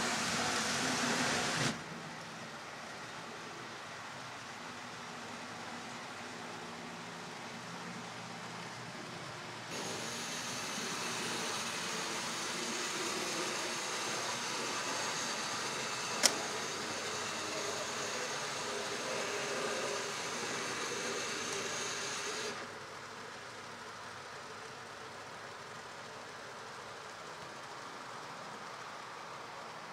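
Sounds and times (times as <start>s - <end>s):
model train whirring on rails: 0.0s - 29.9s
sharp click: 16.2s - 16.4s.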